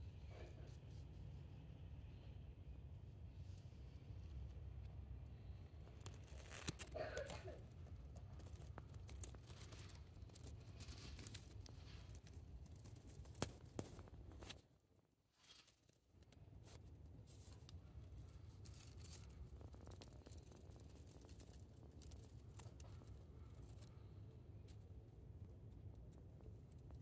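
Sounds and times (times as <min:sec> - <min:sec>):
faint low rumble: 0:00.0 - 0:15.0
small clicks and crackles: 0:03.0 - 0:27.0.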